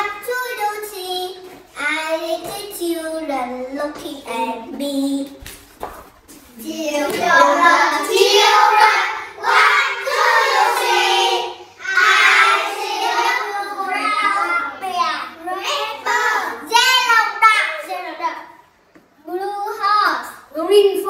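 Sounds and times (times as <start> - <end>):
children singing together: 6.6 - 16.6.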